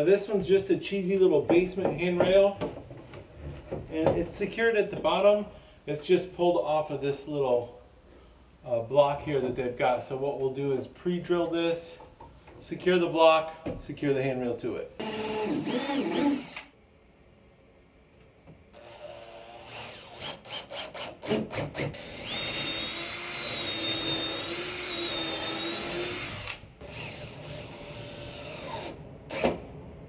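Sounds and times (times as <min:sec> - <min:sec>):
cordless drill whining: 0:15.0 - 0:16.7, 0:21.9 - 0:29.6.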